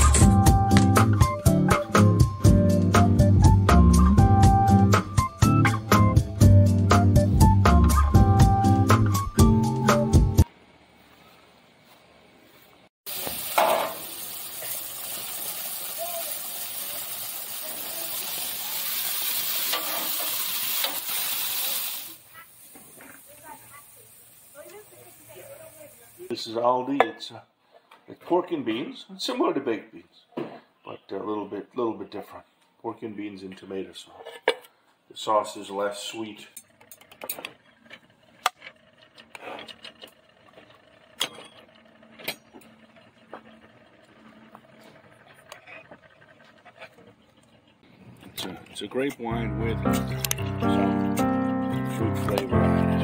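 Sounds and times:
sausages sizzling on a grill: 0:13.1 - 0:26.3.

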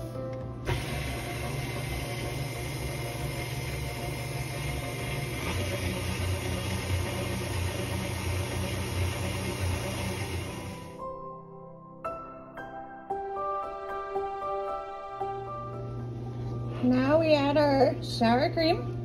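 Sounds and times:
stand mixer motor running: 0:00.7 - 0:11.0.

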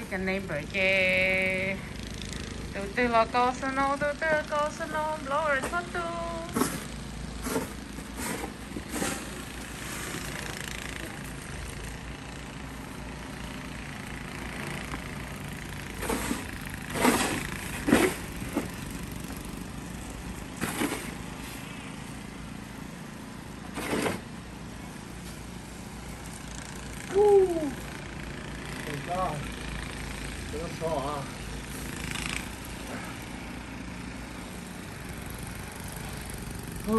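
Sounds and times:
snowblower engine running: 0:00.0 - 0:36.9
snow shovel scraping snow: 0:04.9 - 0:11.4, 0:15.9 - 0:19.5, 0:20.3 - 0:21.9, 0:23.6 - 0:24.3.

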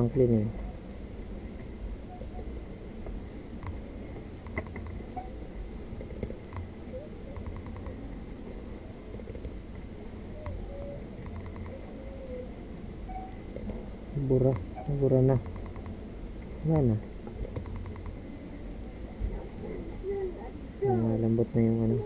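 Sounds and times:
low steady hum: 0:00.0 - 0:22.0
short clicks: 0:11.2 - 0:11.8, 0:13.3 - 0:13.9, 0:15.3 - 0:16.0.

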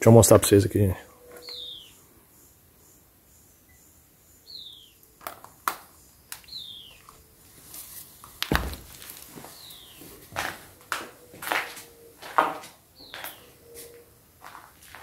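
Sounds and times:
bird whistling: 0:01.1 - 0:02.0, 0:06.5 - 0:07.0
footsteps on concrete floor: 0:06.9 - 0:15.0
deep thump: 0:08.5 - 0:09.0.

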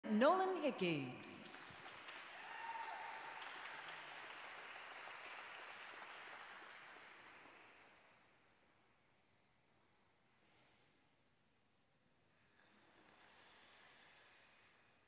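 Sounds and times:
faint applause: 0:01.2 - 0:08.0.

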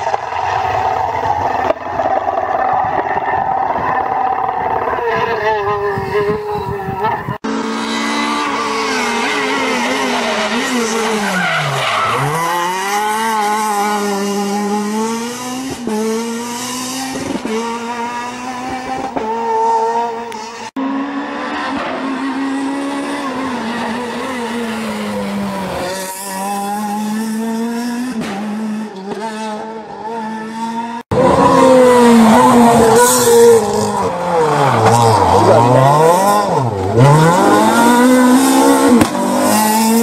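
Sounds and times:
rally car engine at full effort: 0:00.0 - 0:40.0
second car revving: 0:02.9 - 0:40.0.

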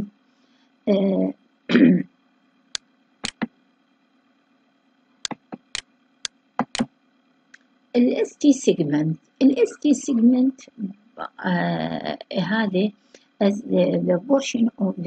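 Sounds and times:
computer mouse clicks: 0:03.2 - 0:03.5, 0:05.3 - 0:06.9.

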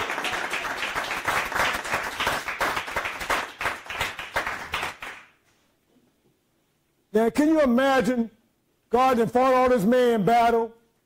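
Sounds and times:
congregation clapping: 0:00.0 - 0:05.4.

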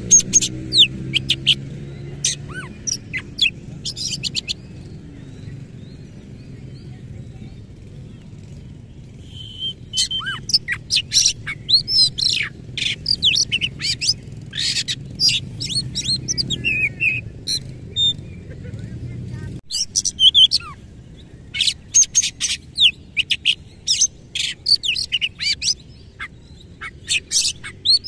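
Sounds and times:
bird singing whistles: 0:09.2 - 0:18.2, 0:19.7 - 0:20.8.

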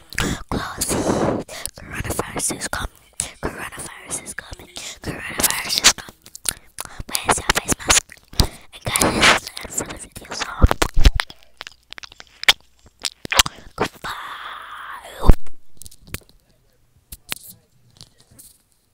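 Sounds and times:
wet mouth clicks and smacks: 0:05.4 - 0:14.1, 0:15.2 - 0:16.4.

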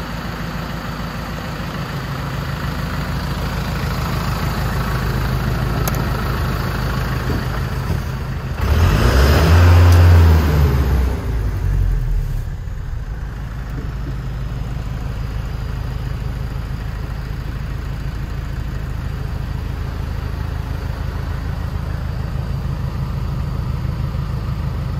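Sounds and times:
diesel truck engine idling and revving: 0:00.0 - 0:24.9.

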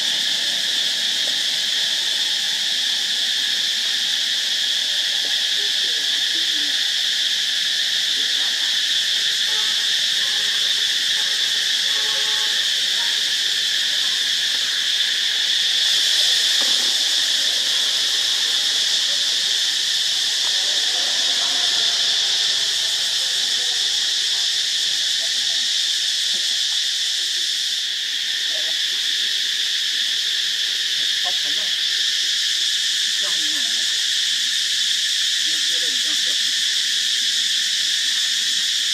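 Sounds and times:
insect chorus high-pitched drone: 0:00.0 - 0:38.9.

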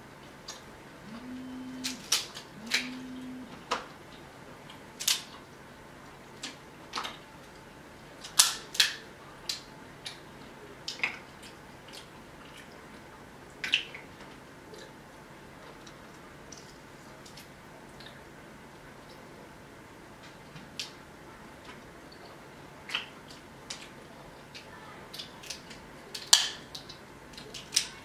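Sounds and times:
crab shells cracking: 0:25.1 - 0:27.9.

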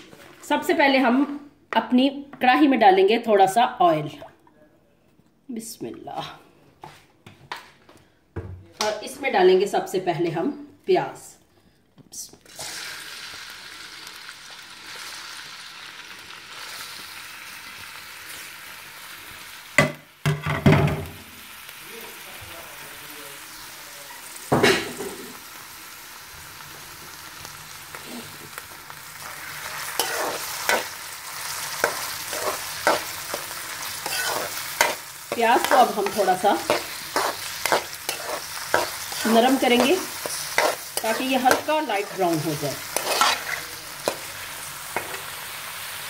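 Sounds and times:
onions sizzling in hot oil: 0:12.4 - 0:46.0.

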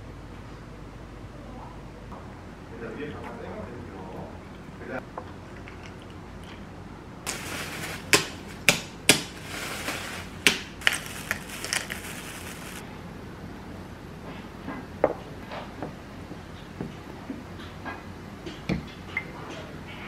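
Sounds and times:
plastic bag crinkling: 0:07.3 - 0:12.8
toffee cracking: 0:07.3 - 0:12.8.

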